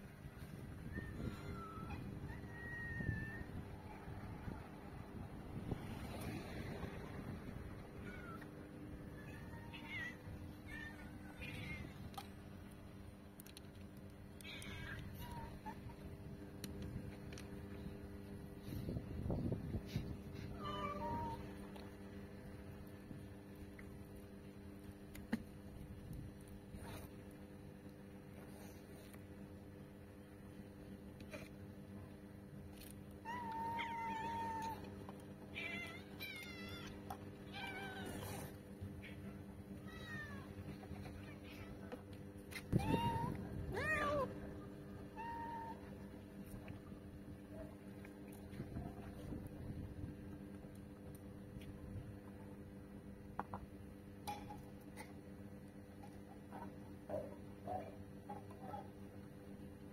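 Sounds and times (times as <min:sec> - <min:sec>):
cats meowing faintly: 0:07.8 - 0:12.3, 0:14.4 - 0:16.1, 0:32.8 - 0:49.4.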